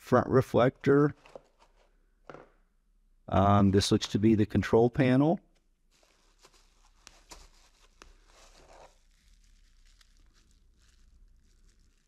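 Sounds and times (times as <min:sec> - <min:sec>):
plastic bags crinkling: 0:05.9 - 0:12.0.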